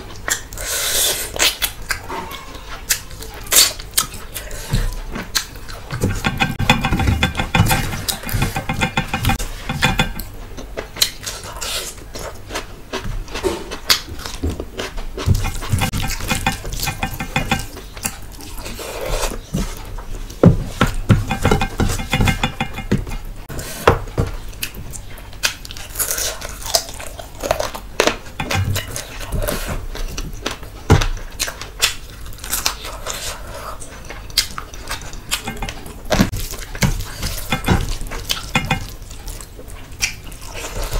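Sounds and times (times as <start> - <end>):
fingers mixing rice on steel plate: 4.0 - 10.4, 14.8 - 23.6, 28.2 - 29.7, 34.0 - 40.9
chewing close to microphone: 24.5 - 40.9.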